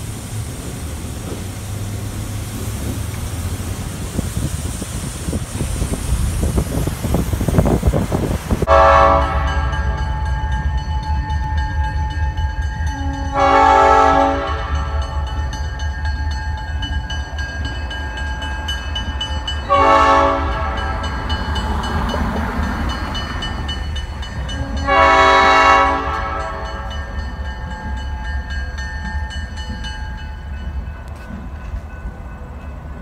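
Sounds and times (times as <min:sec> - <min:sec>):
low locomotive rumble: 0:00.0 - 0:33.0
locomotive air horn blasts: 0:08.7 - 0:10.1, 0:12.9 - 0:15.2, 0:19.7 - 0:21.2, 0:24.5 - 0:26.9.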